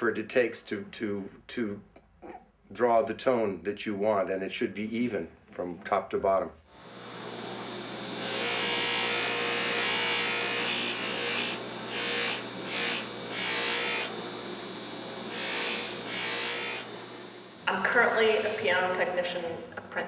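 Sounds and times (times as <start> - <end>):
workpiece rasping hiss: 6.7 - 18.8
bench power tool humming: 6.7 - 19.2.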